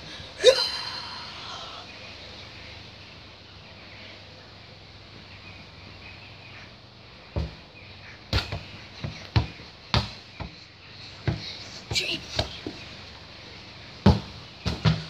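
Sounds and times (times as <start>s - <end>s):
football kicked and bouncing: 7.4s - 7.6s, 8.3s - 10.6s, 11.2s - 11.5s, 14.0s - 15.0s.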